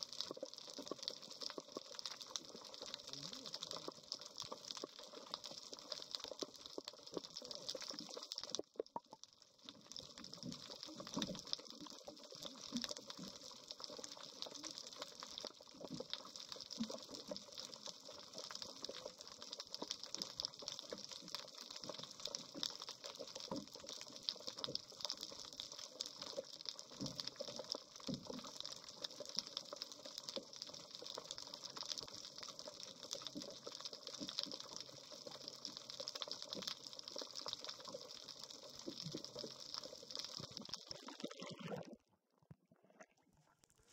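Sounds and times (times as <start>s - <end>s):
crackling clicks underwater: 0.0s - 43.9s
water gurgling: 0.0s - 43.9s.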